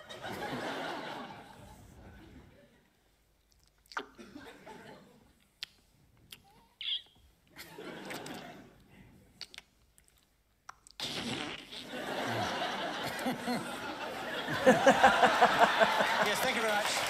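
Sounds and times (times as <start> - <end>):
audience laughing: 0.0 - 2.8, 7.6 - 8.8, 11.8 - 17.0
audience clapping: 13.1 - 17.0.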